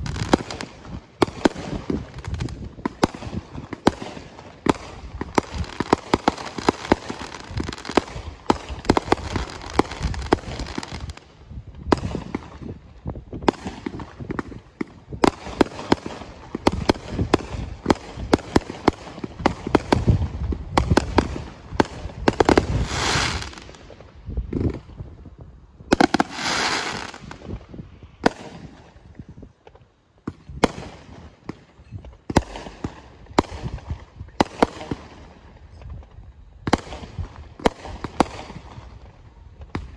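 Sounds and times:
firework crackling hiss: 0.0 - 12.8, 20.8 - 24.9, 25.9 - 29.3
fireworks banging: 0.0 - 25.0, 25.9 - 35.3.

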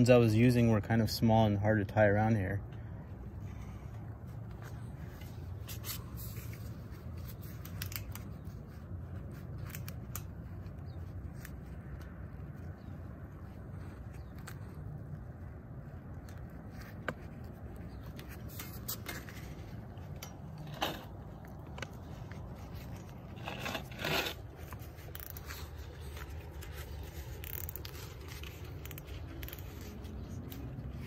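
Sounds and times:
zip tie clicking and scraping: 2.9 - 31.0
zip tie rasp: 3.4 - 31.0.

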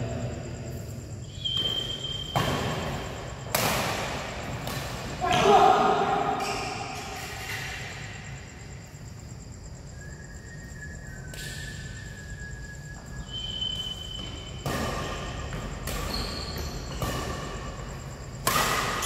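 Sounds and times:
shoes squeaking on court floor: 1.2 - 3.6, 4.2 - 8.1, 12.8 - 19.0
rackets hitting shuttlecock: 1.5 - 8.0, 14.2 - 19.0.

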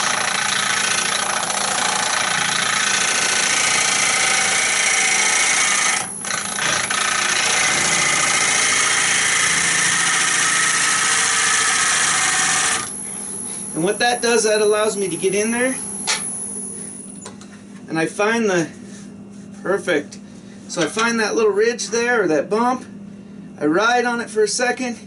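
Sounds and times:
lathe humming: 0.0 - 17.0
gouge shearing wood on lathe: 1.8 - 13.0.

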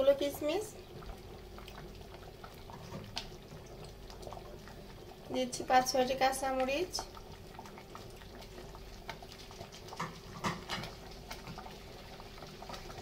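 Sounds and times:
rice and water bubbling: 0.0 - 13.0.

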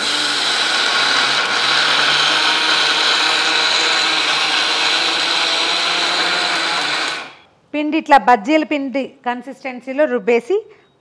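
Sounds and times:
mixer grinder whirring: 0.0 - 7.5.

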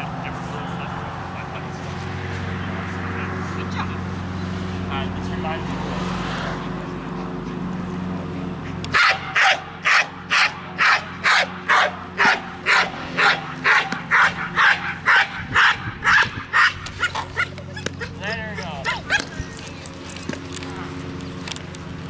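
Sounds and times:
dog barking loudly: 8.9 - 19.6.

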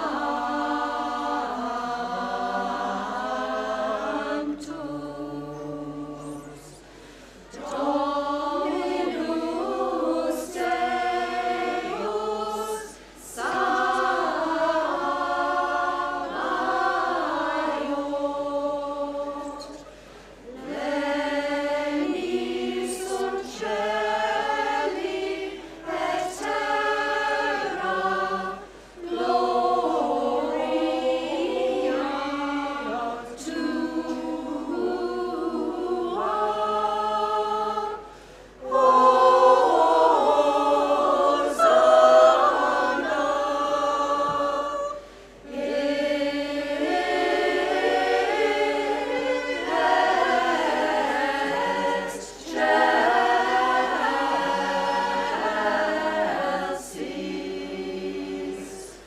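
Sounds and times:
women's choir singing a cappella: 0.0 - 59.0.

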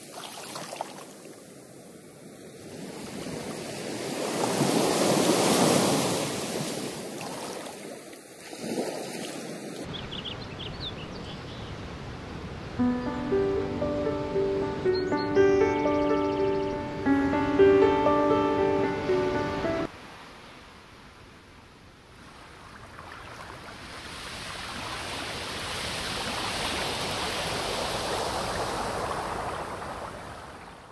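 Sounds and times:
rushing water: 0.0 - 1.7, 17.0 - 30.9.

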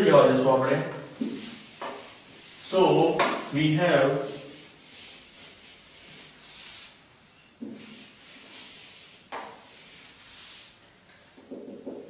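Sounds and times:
duster rubbing on whiteboard: 1.1 - 7.0, 7.6 - 10.8.

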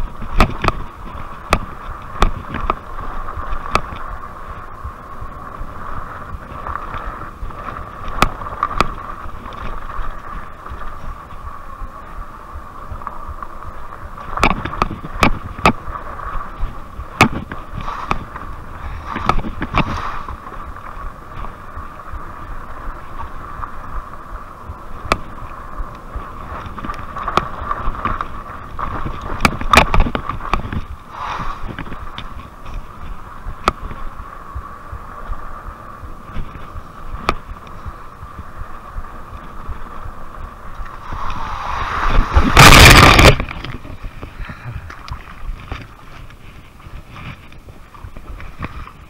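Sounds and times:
bike knocking and rattling: 0.0 - 4.9, 6.3 - 11.4, 14.0 - 22.4, 24.7 - 31.0
high steady whine: 0.0 - 48.9
wind on microphone: 0.0 - 49.0
tyres rumbling on dirt: 36.6 - 44.9.

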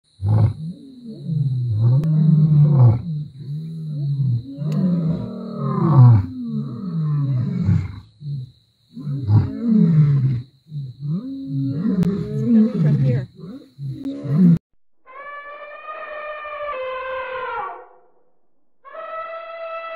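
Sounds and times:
lion roaring: 0.2 - 8.0, 9.0 - 14.6.

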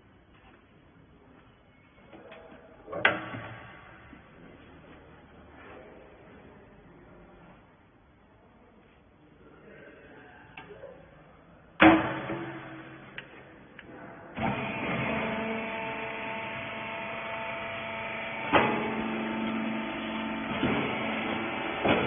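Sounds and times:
hydraulic pump motor humming: 14.3 - 22.0.

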